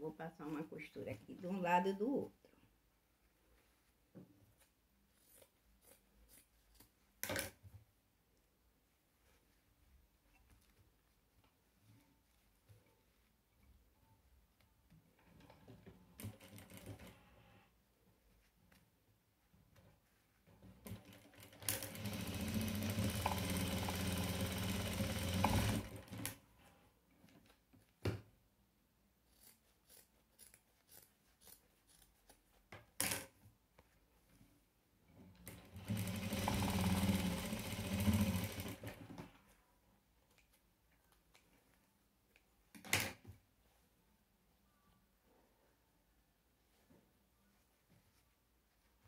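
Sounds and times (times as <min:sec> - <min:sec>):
sewing machine stitching: 0:15.4 - 0:17.3, 0:20.7 - 0:26.4, 0:35.4 - 0:39.2.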